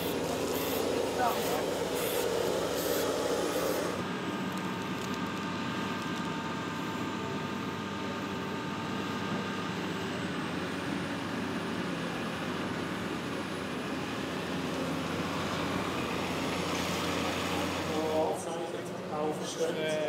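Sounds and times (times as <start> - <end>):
excavator diesel engines running: 0.0 - 20.0.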